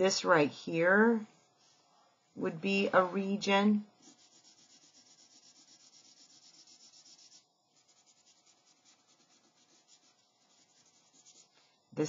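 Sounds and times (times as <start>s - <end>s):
highlighter rubbing on paper: 4.0s - 11.6s.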